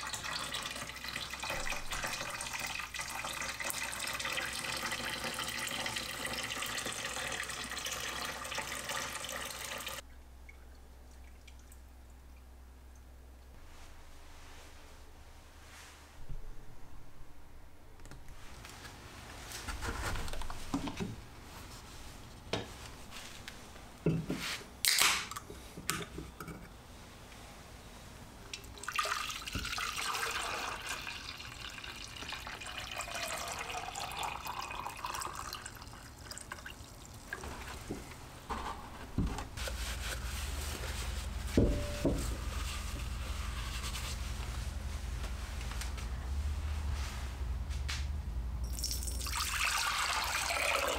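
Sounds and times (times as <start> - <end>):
low steady hum: 10.0 - 30.0, 30.8 - 50.9
water poured into plastic cylinder: 28.6 - 37.8, 48.7 - 50.9.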